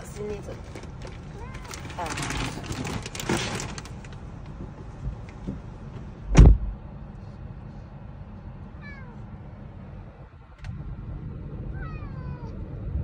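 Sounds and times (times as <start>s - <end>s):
low steady hum: 0.0s - 13.0s
cat meowing: 1.2s - 1.9s, 8.8s - 9.2s, 11.7s - 12.6s
dull thump on car window: 4.6s - 6.8s.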